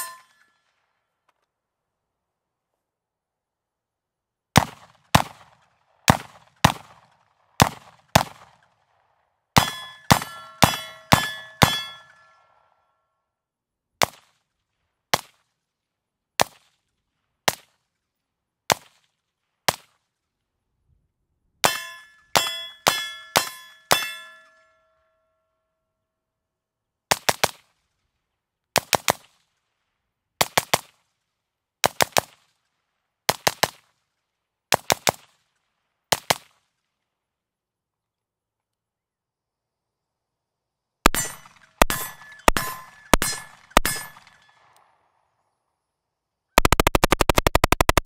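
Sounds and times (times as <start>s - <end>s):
metallic ring: 0.0s - 0.7s, 9.6s - 12.5s, 21.7s - 25.7s, 41.1s - 44.6s
rifle shots: 4.6s - 8.6s, 41.1s - 44.9s, 46.6s - 48.0s
suppressed rifle shots: 41.1s - 44.9s, 46.6s - 48.0s.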